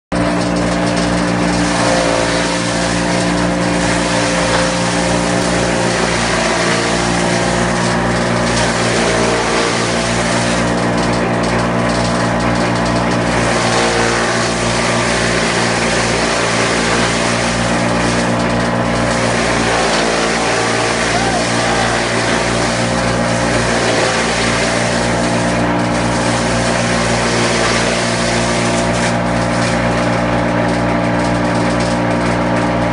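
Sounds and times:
forage chopper humming: 0:00.1 - 0:32.9
cutter chopping fodder with hiss: 0:01.4 - 0:10.7, 0:13.3 - 0:29.8.

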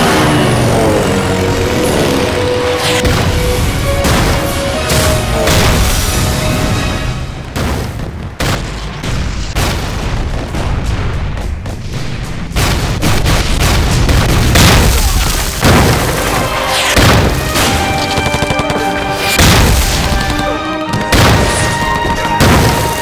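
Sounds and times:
background music: 0:00.0 - 0:09.1, 0:15.6 - 0:23.0
artillery shells exploding: 0:03.0 - 0:23.0.

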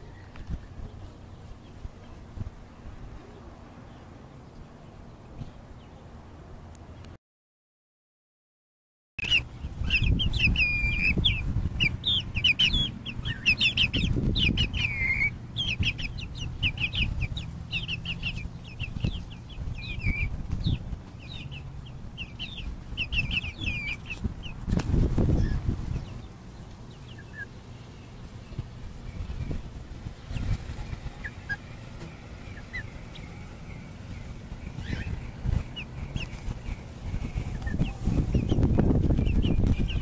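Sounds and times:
chickens chirping and clucking: 0:00.0 - 0:07.1, 0:09.2 - 0:40.0.

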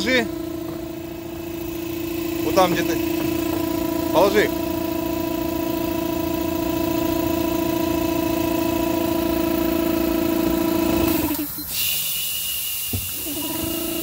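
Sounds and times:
air blower motor humming: 0:00.0 - 0:11.7, 0:12.8 - 0:14.0
high hiss: 0:11.4 - 0:13.3.

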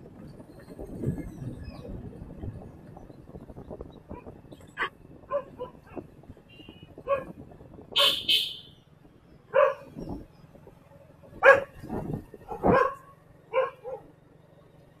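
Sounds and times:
dog barking: 0:04.8 - 0:06.0, 0:07.0 - 0:07.3, 0:08.0 - 0:08.3, 0:09.5 - 0:09.9, 0:11.4 - 0:11.8, 0:12.4 - 0:14.1.

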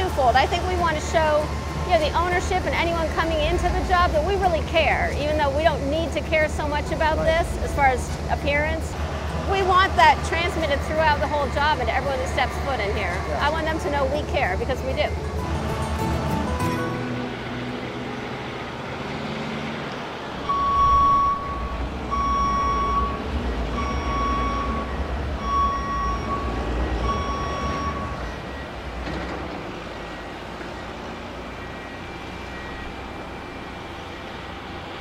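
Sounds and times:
low engine rumble: 0:00.0 - 0:35.0
reversing alarm beeps: 0:20.4 - 0:29.2, 0:29.9 - 0:34.7.

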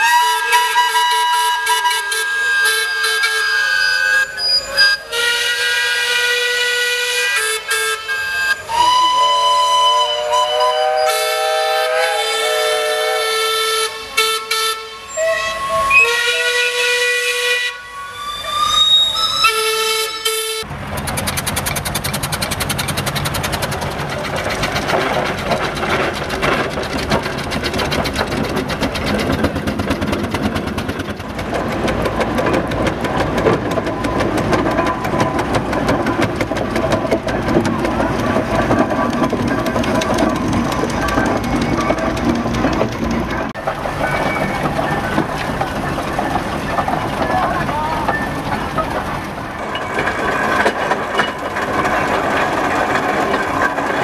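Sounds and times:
steam whistles blowing: 0:00.0 - 0:20.6
engine running with fast beat: 0:20.7 - 0:44.0.

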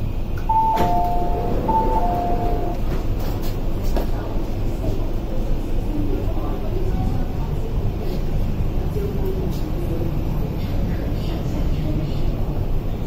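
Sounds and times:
train interior rumble: 0:00.0 - 0:13.0
two-note door chime: 0:00.5 - 0:02.9.

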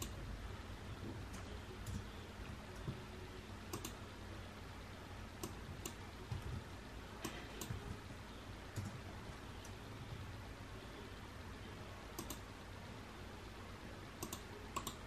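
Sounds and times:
computer mouse clicking: 0:03.7 - 0:04.0, 0:05.4 - 0:06.5, 0:12.2 - 0:12.5, 0:14.2 - 0:15.0.

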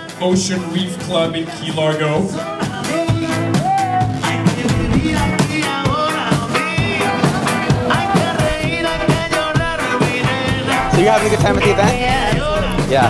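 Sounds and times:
upbeat rock music: 0:01.2 - 0:13.0
person singing: 0:02.4 - 0:13.0
steady drum beat: 0:04.1 - 0:06.2, 0:07.9 - 0:13.0.

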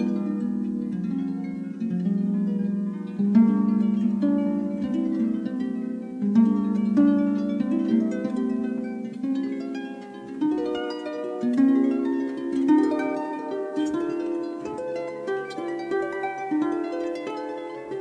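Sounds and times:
solo harp playing: 0:00.0 - 0:18.0.

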